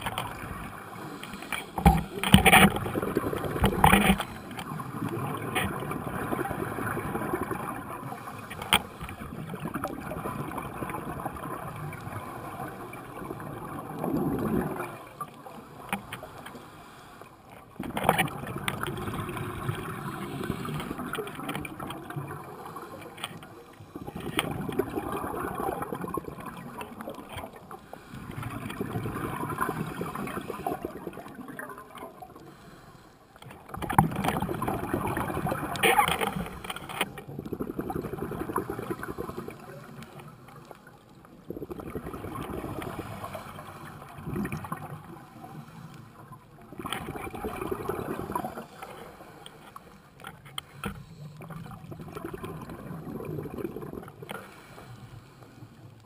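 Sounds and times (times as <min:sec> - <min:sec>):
diver exhaling bubbles underwater: 0:01.8 - 0:08.2, 0:09.1 - 0:15.2, 0:17.8 - 0:22.9, 0:24.0 - 0:27.6, 0:28.4 - 0:32.3, 0:33.7 - 0:36.6, 0:37.2 - 0:40.0, 0:41.5 - 0:45.4, 0:46.7 - 0:48.8, 0:51.4 - 0:54.5.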